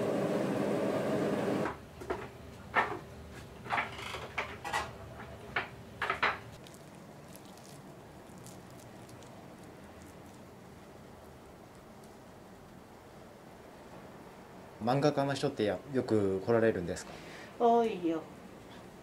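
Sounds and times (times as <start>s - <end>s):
rushing stove noise: 0.0s - 1.8s.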